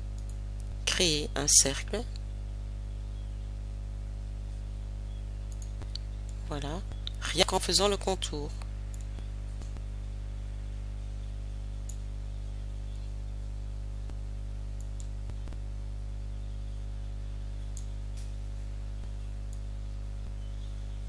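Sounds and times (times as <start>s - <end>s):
low electrical hum: 0.0s - 21.0s
computer mouse clicks: 0.2s - 0.7s, 5.5s - 7.2s, 8.9s - 9.8s, 11.8s - 12.0s, 14.8s - 15.6s.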